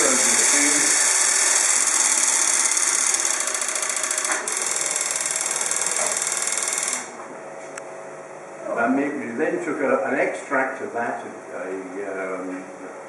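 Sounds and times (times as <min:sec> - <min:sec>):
rapid electromechanical chatter: 0:00.0 - 0:07.2.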